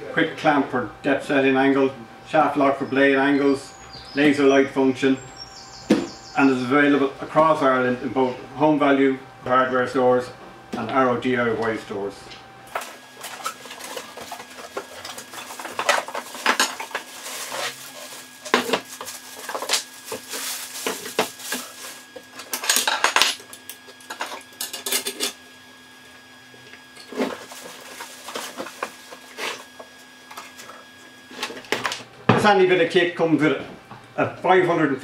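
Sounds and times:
packaging rustling: 0:12.7 - 0:23.0, 0:27.1 - 0:29.8.

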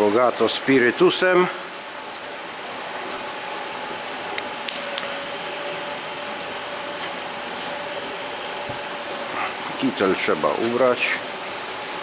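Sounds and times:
equipment hum and hiss: 0:00.0 - 0:12.0.

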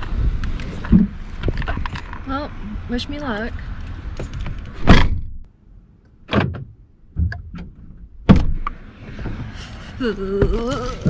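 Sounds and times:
knocks and thuds: 0:04.2 - 0:05.4, 0:06.3 - 0:09.5.

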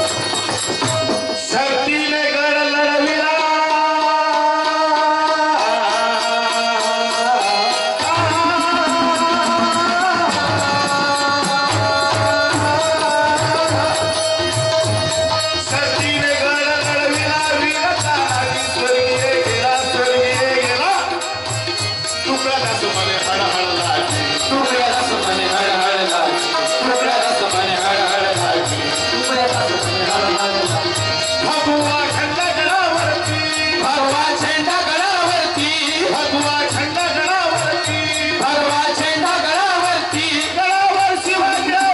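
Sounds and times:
barrel drum beat: 0:00.0 - 0:01.6
metallic hand percussion ticking: 0:00.0 - 0:02.1, 0:04.6 - 0:41.9
men singing devotional song: 0:00.0 - 0:41.9.

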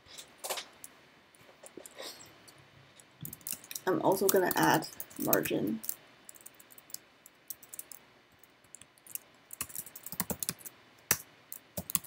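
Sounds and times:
typing on computer keyboard: 0:03.2 - 0:12.0.

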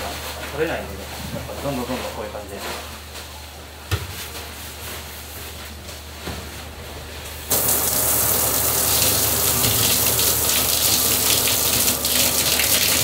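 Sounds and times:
shower spraying water: 0:07.5 - 0:13.0
brush scrubbing bath wall: 0:07.6 - 0:13.0.

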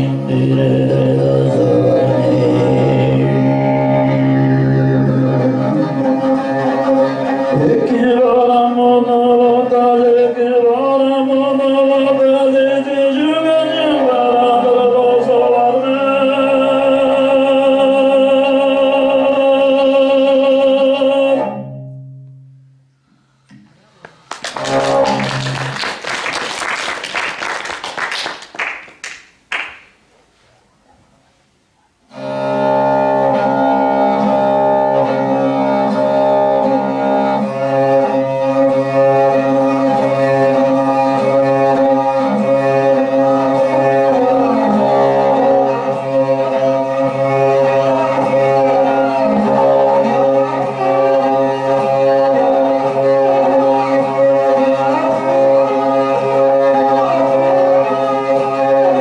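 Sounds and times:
bowed fiddle drone: 0:00.0 - 0:08.0, 0:32.2 - 0:59.0.

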